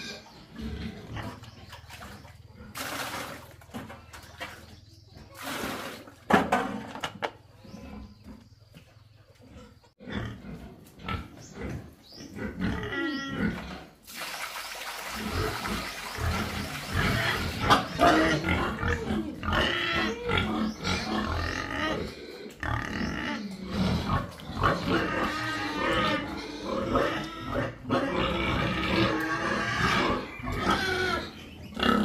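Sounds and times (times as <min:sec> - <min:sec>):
pigs grunting and squealing: 0:00.0 - 0:03.4, 0:09.4 - 0:14.0, 0:15.2 - 0:32.0.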